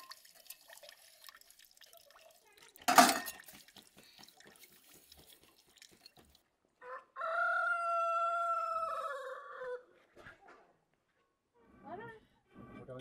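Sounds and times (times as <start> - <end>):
rooster crowing: 6.8 - 9.9.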